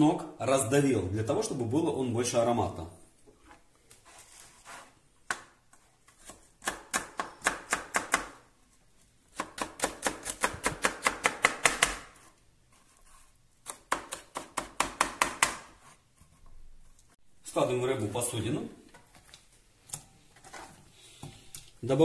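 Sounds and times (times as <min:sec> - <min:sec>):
knife chopping on plastic board: 0:05.2 - 0:08.5, 0:09.3 - 0:12.2, 0:13.6 - 0:15.8.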